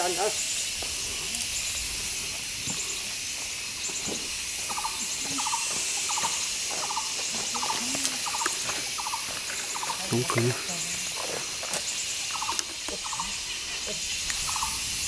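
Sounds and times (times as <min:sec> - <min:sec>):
faint chirps: 0:00.0 - 0:15.0
insect hiss: 0:00.0 - 0:15.0
animal chattering call: 0:04.7 - 0:10.5, 0:12.2 - 0:15.0.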